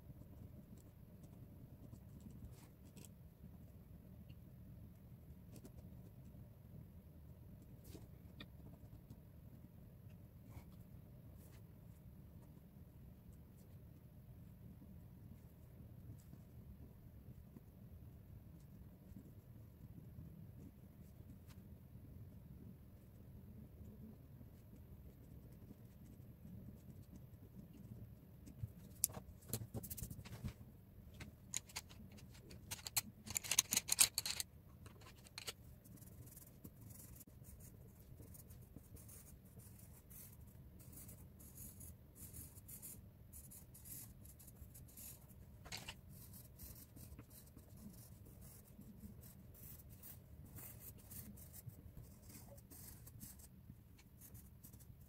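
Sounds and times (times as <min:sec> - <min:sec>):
pencil scratching on paper: 0:31.8 - 0:55.0.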